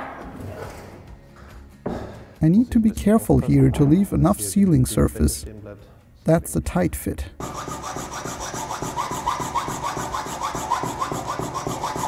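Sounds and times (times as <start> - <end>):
hand file rasping on metal: 7.4 - 12.0.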